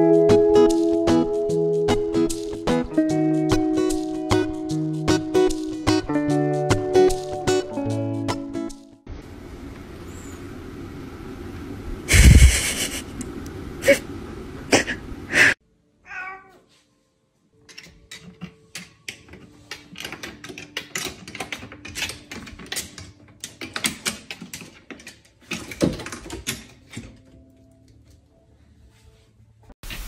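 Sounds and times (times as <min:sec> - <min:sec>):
cat meowing: 0:16.0 - 0:16.7
cat paws tapping wooden rungs: 0:17.7 - 0:28.0.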